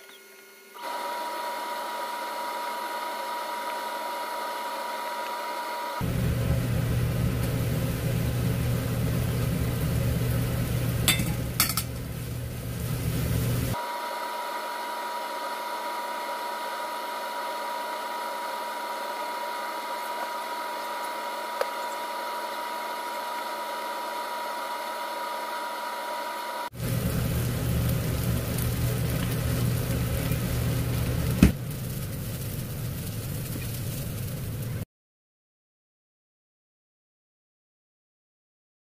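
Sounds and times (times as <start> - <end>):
small motor whirring: 0.0 - 6.1, 13.7 - 26.8
deeper motor hum: 0.0 - 34.8.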